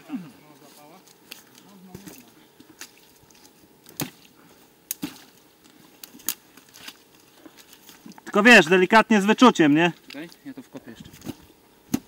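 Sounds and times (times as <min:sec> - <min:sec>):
wet squelches in mud: 0:00.7 - 0:08.4.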